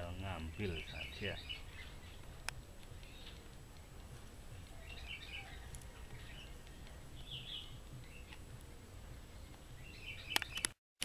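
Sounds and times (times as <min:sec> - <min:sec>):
faint bird chirps: 0:00.4 - 0:08.4
low outdoor rumble: 0:01.4 - 0:10.3.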